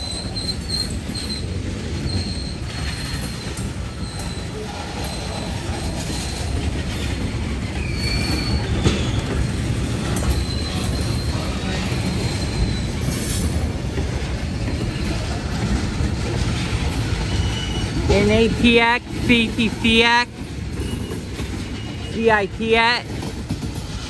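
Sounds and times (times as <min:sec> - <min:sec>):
high-pitched wheel squeals: 0:00.0 - 0:09.5, 0:10.1 - 0:13.5, 0:17.2 - 0:18.0, 0:20.8 - 0:22.1
train wheels rumbling on rail: 0:00.0 - 0:24.0.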